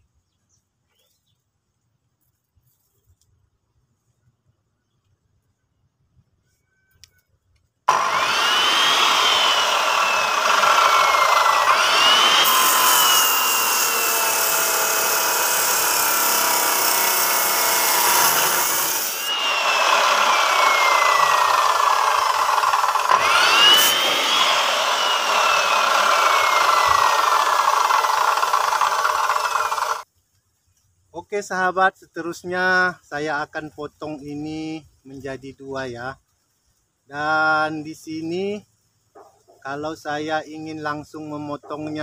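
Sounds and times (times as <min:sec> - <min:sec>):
chop saw cutting wire: 0:07.9 - 0:30.0.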